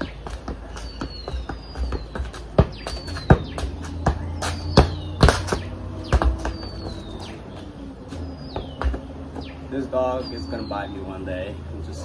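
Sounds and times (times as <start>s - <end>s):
soccer ball thumping off foot: 0.0s - 6.9s, 8.5s - 9.5s.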